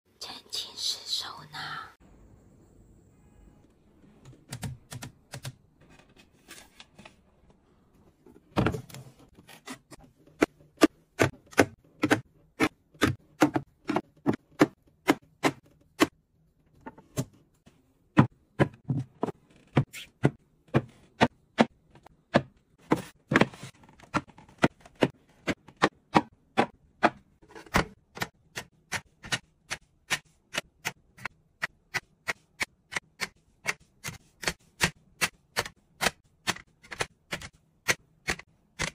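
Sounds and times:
hard objects clicking on shelves: 8.3s - 17.4s, 18.1s - 38.9s.

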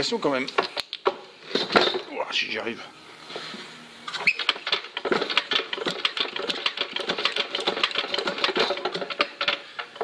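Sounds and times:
engine mechanism clicking and clattering: 4.2s - 10.0s.

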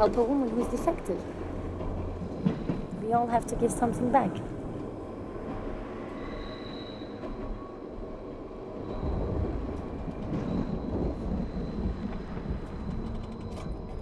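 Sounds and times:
rail vehicle rumbling: 0.0s - 14.0s.

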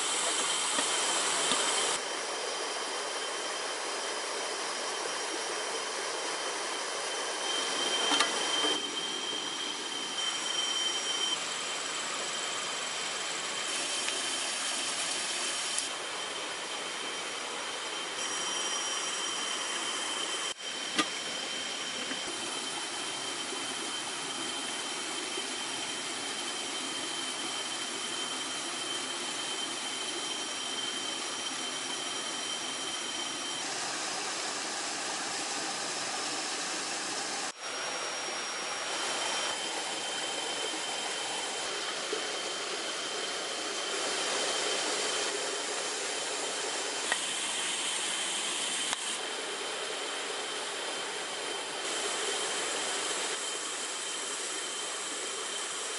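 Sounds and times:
forest stream flowing: 18.9s - 55.9s.

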